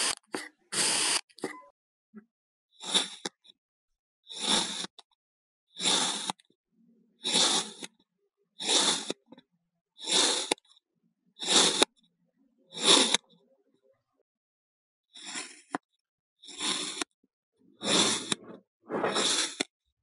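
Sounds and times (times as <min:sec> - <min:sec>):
blade slicing sand: 0:04.3 - 0:05.0, 0:05.8 - 0:06.4, 0:07.2 - 0:07.9, 0:08.6 - 0:09.2, 0:10.0 - 0:10.6, 0:11.4 - 0:11.9, 0:16.4 - 0:17.1, 0:17.8 - 0:18.4, 0:19.0 - 0:19.7.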